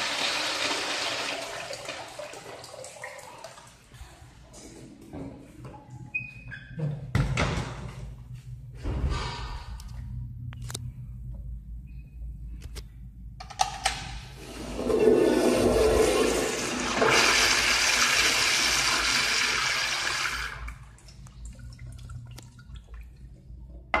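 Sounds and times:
toilet flushing water rush: 0.0s - 3.7s, 14.4s - 23.1s
faint water trickle: 1.5s - 4.3s, 20.7s - 23.7s.

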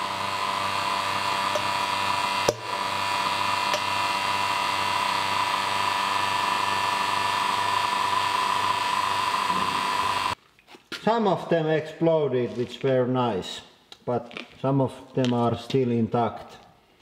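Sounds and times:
vacuum pump whining: 0.0s - 10.4s.

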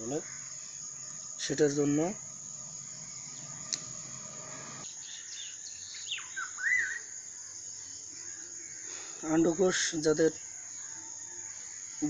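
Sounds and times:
bird calling: 0.0s - 7.2s
insects droning: 0.0s - 12.0s.

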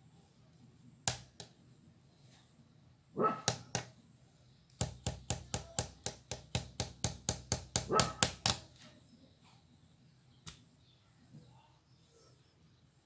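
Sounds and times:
dog bark: 3.2s - 3.6s, 7.9s - 8.2s
fast run of sharp taps: 4.8s - 8.6s.

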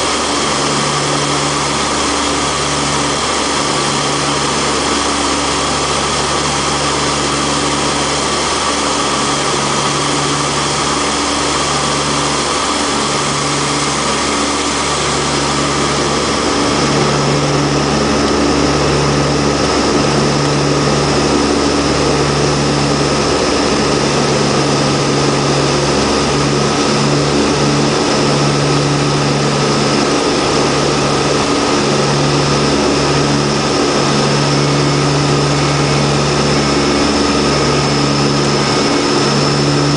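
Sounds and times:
turboprop engines droning: 0.0s - 39.9s.

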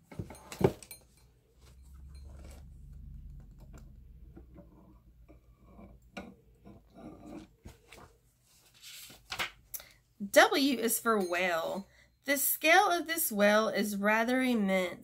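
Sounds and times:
book rustling: 1.6s - 3.7s, 7.4s - 9.7s.

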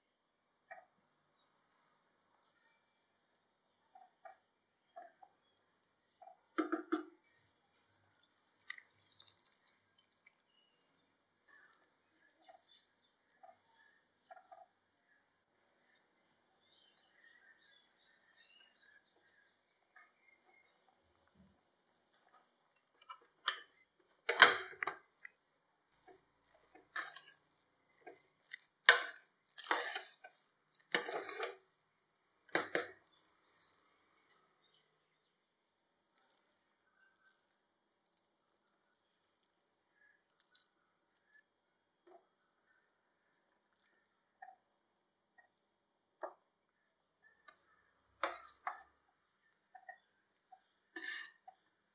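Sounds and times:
spatula stirring thick stew: 7.3s - 25.2s, 25.8s - 34.1s, 47.3s - 51.7s
liquid pouring and splashing: 7.8s - 10.6s, 25.9s - 33.9s, 36.1s - 40.8s
spoon mashing rice in pot: 11.5s - 16.2s, 18.1s - 33.8s, 47.3s - 51.6s.

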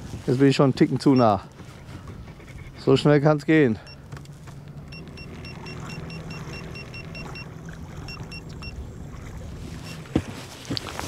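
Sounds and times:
short high electronic beeps: 4.9s - 7.5s.

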